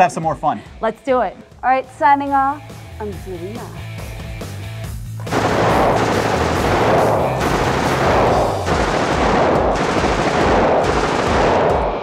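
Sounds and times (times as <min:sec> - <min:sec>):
machine gun firing bursts: 0:05.3 - 0:12.0.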